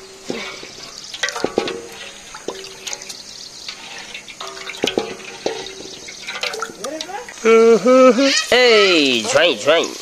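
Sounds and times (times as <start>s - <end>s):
water splashing in metal basin: 0.0s - 7.5s.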